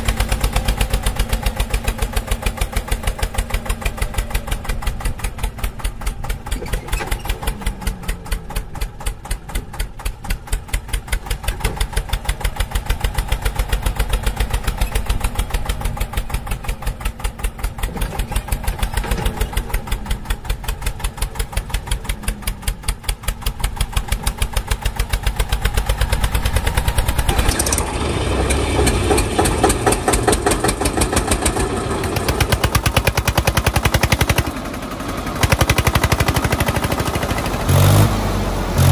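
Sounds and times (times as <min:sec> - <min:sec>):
tractor diesel engine chugging: 0:00.0 - 0:38.9.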